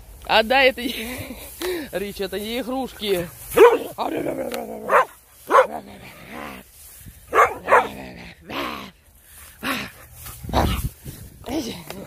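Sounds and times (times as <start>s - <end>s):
dog barking: 3.6s - 3.9s, 4.9s - 5.8s, 7.3s - 8.0s.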